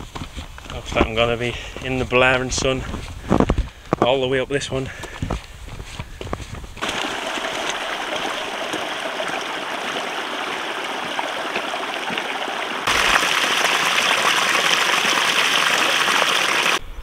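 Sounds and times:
stream water rushing: 0:06.8 - 0:16.8.

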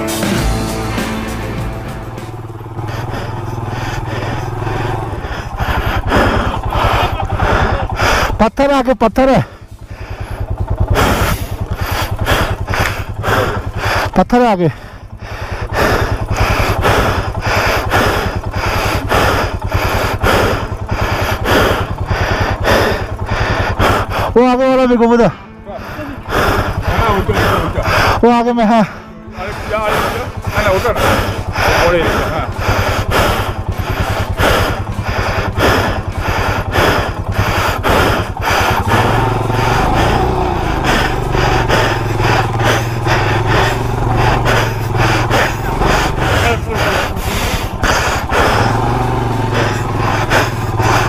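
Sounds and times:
motorcycle engine idling: 0:00.0 - 0:51.0
pulsing rushing noise: 0:00.0 - 0:51.0
rhythmic clatter: 0:00.0 - 0:51.0.

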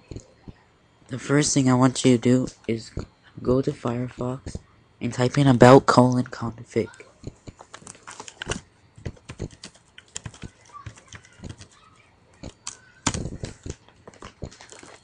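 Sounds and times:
computer keyboard keys clicking: 0:07.2 - 0:11.8, 0:12.4 - 0:15.0.

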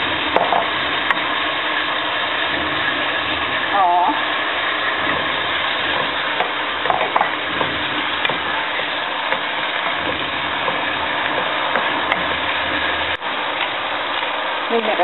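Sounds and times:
meat sizzling in a pan: 0:00.0 - 0:15.0
wooden spatula scraping a pan: 0:02.4 - 0:13.2.

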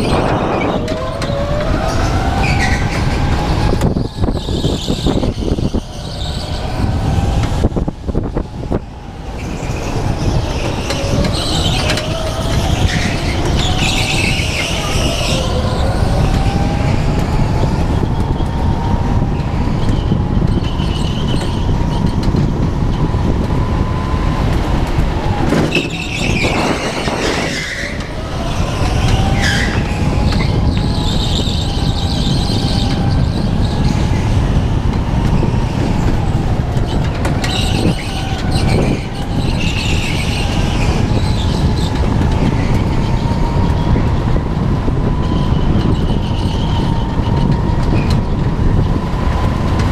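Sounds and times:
go-kart engine rumble: 0:00.0 - 0:49.9
tyres squealing: 0:09.3 - 0:17.1, 0:25.5 - 0:34.3.

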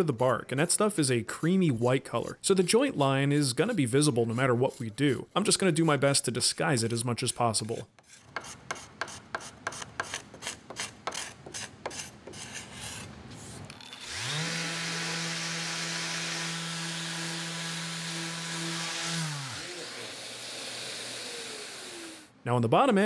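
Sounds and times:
hand rubbing along wood: 0:00.0 - 0:13.7
orbital sander running: 0:13.9 - 0:22.3.

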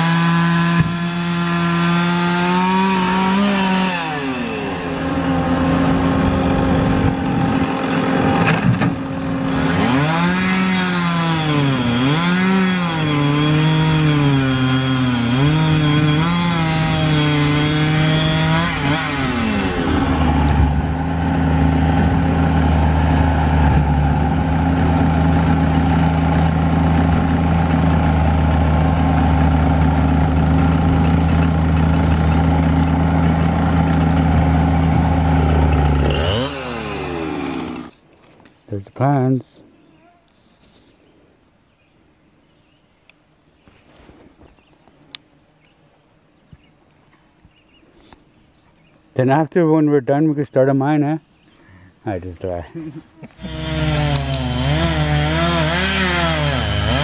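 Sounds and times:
diesel engine working: 0:00.0 - 0:37.9.

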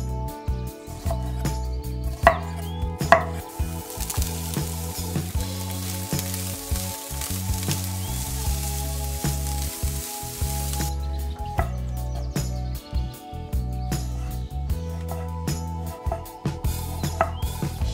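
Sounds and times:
vegetables sizzling in oil: 0:03.4 - 0:10.9.

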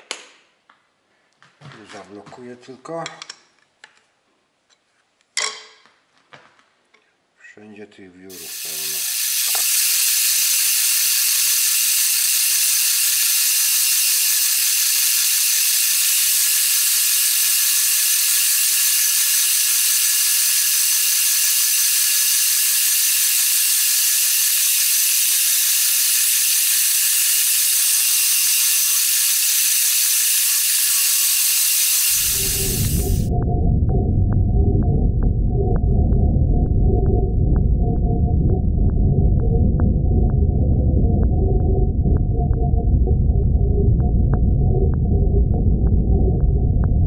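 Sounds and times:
milling cutter hissing through steel: 0:08.3 - 0:33.3.

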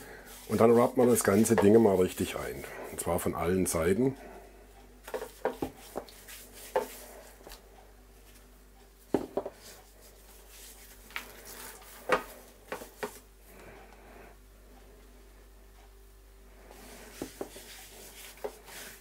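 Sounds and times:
hands rubbing spice into meat: 0:17.2 - 0:19.0.

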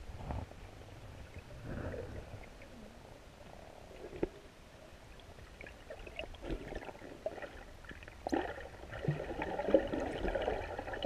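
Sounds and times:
underwater gurgling water: 0:00.4 - 0:11.0.

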